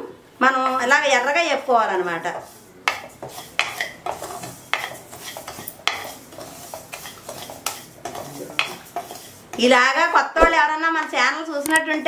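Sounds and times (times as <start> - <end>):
spatula scraping metal pan: 2.3 - 9.4.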